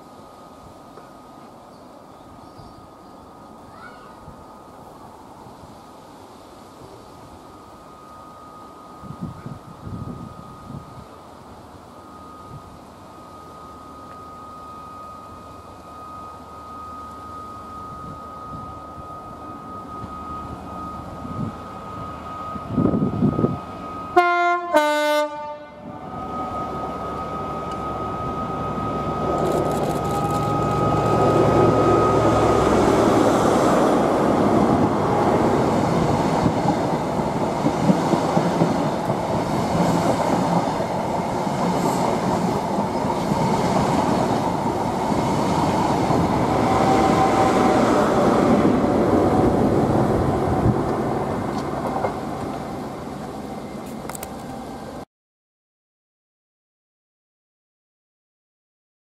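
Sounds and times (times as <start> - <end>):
train horn blast: 22.4 - 26.4, 46.5 - 48.4
train wheels rumbling on rails: 25.9 - 55.0.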